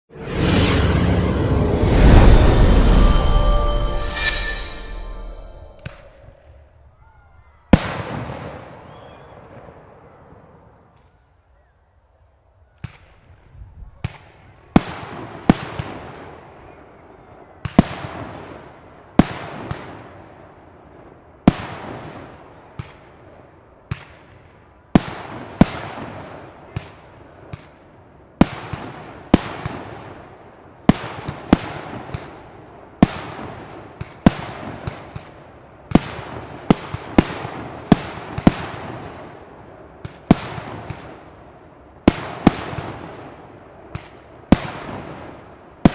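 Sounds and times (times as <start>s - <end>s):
fireworks bangs with rolling echo: 7.7s - 10.6s, 13.9s - 16.6s, 17.6s - 45.9s.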